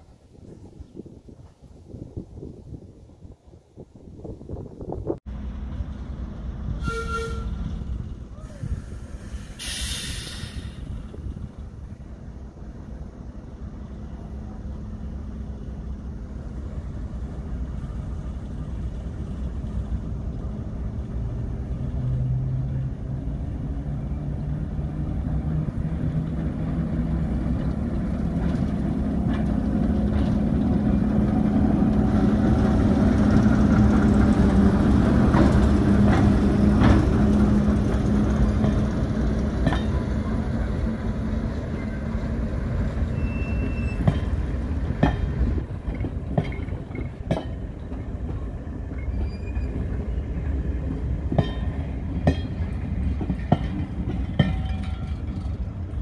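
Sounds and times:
diesel locomotive engine running: 0:05.3 - 0:56.0
wheels clicking on rail joints: 0:23.6 - 0:56.0.

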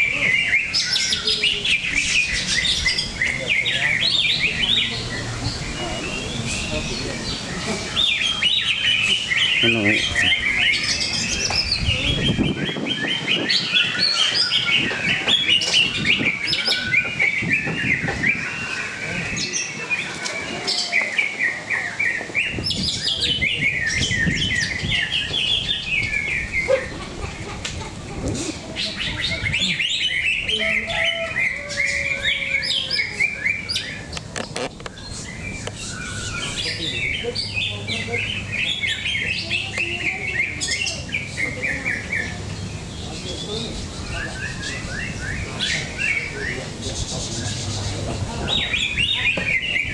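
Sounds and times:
bird chirping and whistling: 0:00.0 - 0:19.7
murmur of voices: 0:00.0 - 0:49.9.

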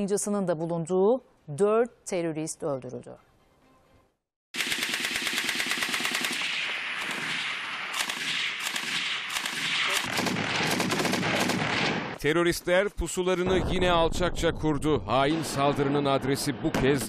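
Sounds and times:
machine guns firing: 0:04.6 - 0:12.2.

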